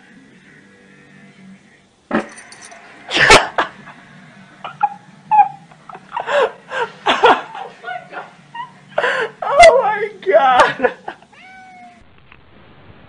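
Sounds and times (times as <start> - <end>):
cat crying: 11.2 - 12.0.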